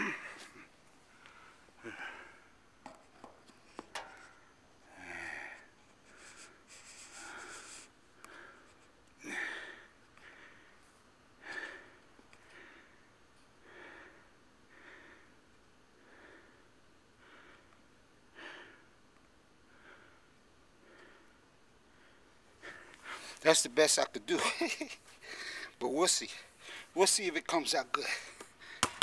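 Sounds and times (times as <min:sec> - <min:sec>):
person breathing close: 0:00.0 - 0:02.6, 0:04.1 - 0:10.8, 0:25.1 - 0:25.8.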